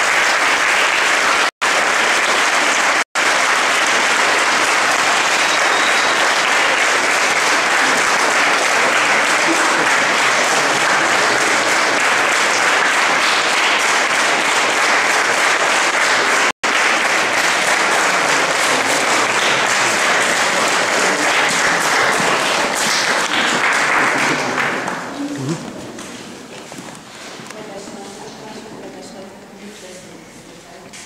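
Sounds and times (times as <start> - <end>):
audience applauding: 0.0 - 26.1.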